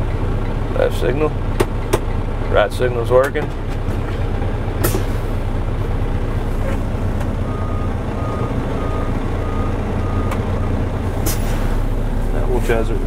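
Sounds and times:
diesel truck engine idling: 0.0 - 13.0
backup alarm beeping: 7.4 - 10.9.

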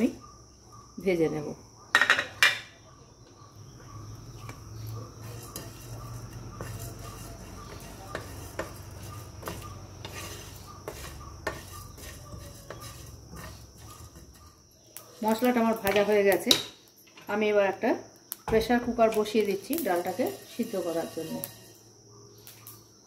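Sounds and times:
spatula stirring spices in pan: 3.1 - 17.0, 18.4 - 22.6.

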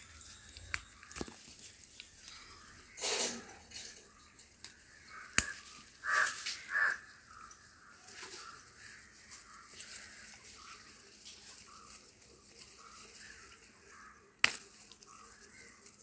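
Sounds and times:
crow cawing: 4.9 - 10.3, 13.2 - 14.3.

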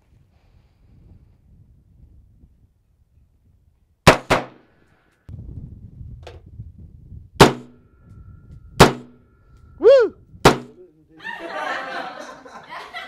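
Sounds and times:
rifle shots: 4.1 - 4.6.

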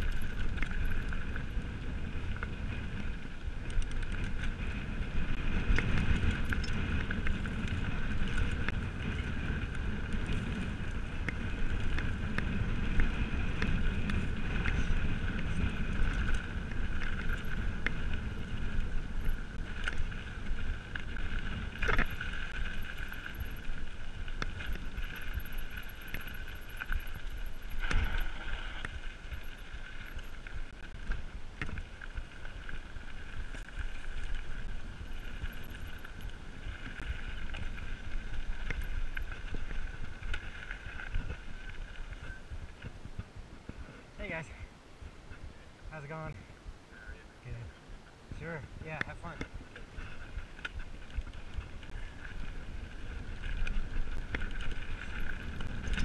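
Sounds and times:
wind buffeting microphone: 0.0 - 56.0
bike jolting over bumps: 49.8 - 56.0.

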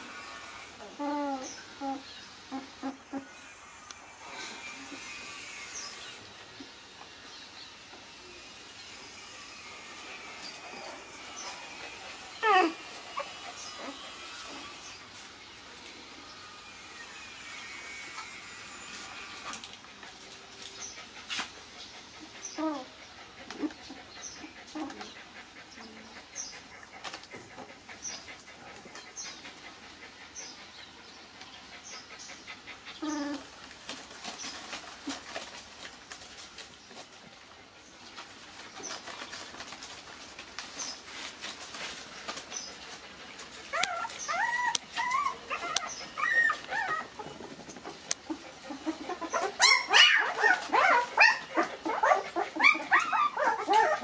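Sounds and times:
puppies whimpering: 0.1 - 6.2, 9.8 - 15.1, 22.1 - 30.9, 31.6 - 33.6, 43.4 - 54.0.

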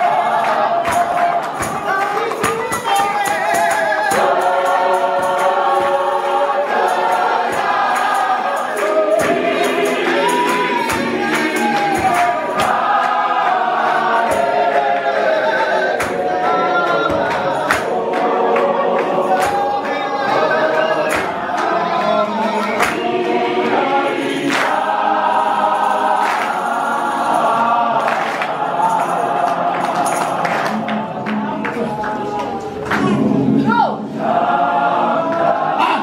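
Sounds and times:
hand claps: 0.0 - 33.2
choir singing in harmony: 0.0 - 36.0.

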